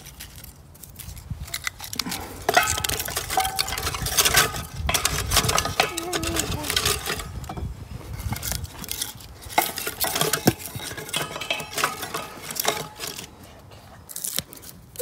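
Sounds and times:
wooden sticks knocking against metal: 2.4s - 13.3s.

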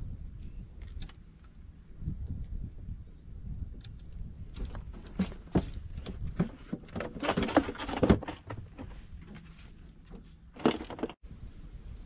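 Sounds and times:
wind rumble on microphone: 0.0s - 6.7s, 11.2s - 12.0s
fishing gear knocking and rustling: 3.8s - 11.2s.

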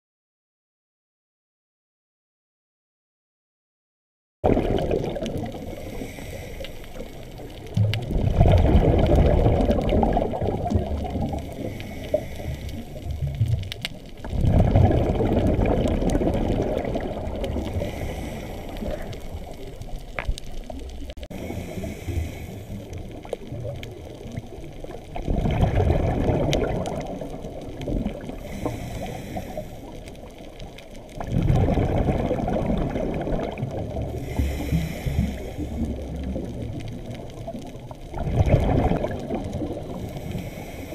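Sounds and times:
exhaled bubbles rushing underwater: 4.4s - 40.9s
regulator inhalation hiss: 5.7s - 7.5s, 11.5s - 13.1s, 17.7s - 19.7s, 21.4s - 23.0s, 28.5s - 30.0s, 34.2s - 36.1s, 40.1s - 40.9s.

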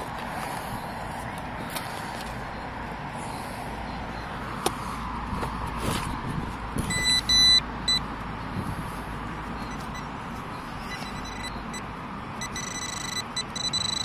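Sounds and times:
metal detector beeps: 6.8s - 8.1s, 9.6s - 14.0s.

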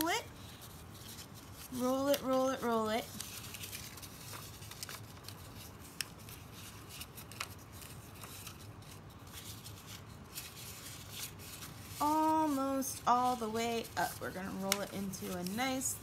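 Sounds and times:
paper rustling being rolled: 0.0s - 16.0s.

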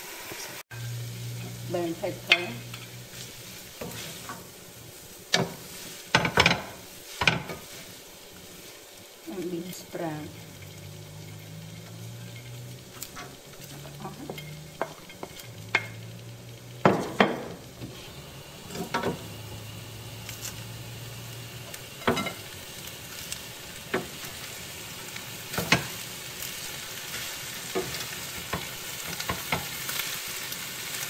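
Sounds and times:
food sizzling in a pan: 0.0s - 31.0s
spatula scraping and knocking pan: 1.4s - 4.6s, 5.3s - 8.8s, 10.3s - 16.2s, 16.8s - 19.3s, 21.7s - 22.5s, 23.8s - 24.3s, 25.5s - 30.1s.

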